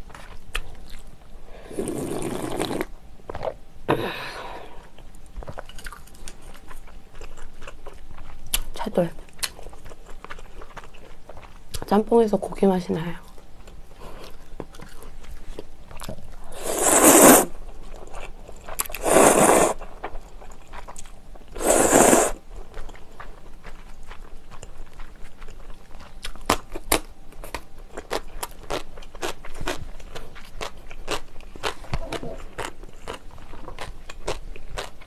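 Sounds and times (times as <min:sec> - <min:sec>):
noodles slurping: 0:16.5 - 0:17.5, 0:18.9 - 0:19.8, 0:21.6 - 0:22.4.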